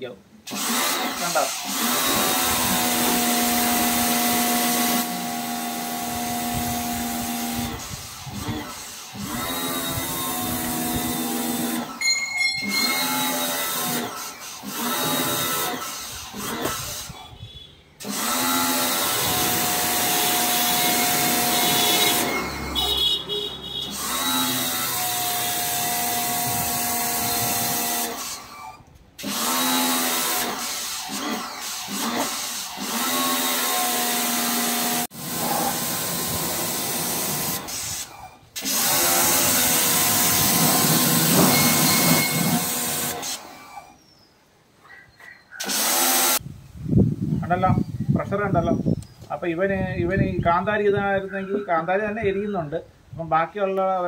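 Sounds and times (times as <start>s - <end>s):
high-pressure water jet hissing: 0.5s - 12.0s, 12.9s - 17.3s, 18.0s - 43.8s, 45.6s - 46.4s
pressure washer motor humming: 0.6s - 12.0s, 12.6s - 17.0s, 18.0s - 23.2s, 29.2s - 38.0s, 38.6s - 43.6s.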